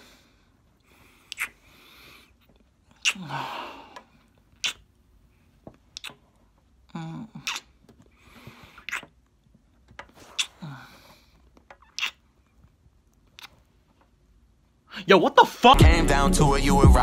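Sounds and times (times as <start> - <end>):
heavy breathing: 0.0 - 2.5, 3.1 - 4.3, 10.1 - 11.5
wet lip smacks: 1.3 - 1.6, 4.5 - 4.9, 5.9 - 6.2, 7.4 - 7.7, 8.8 - 9.2, 10.3 - 10.6, 11.8 - 12.2.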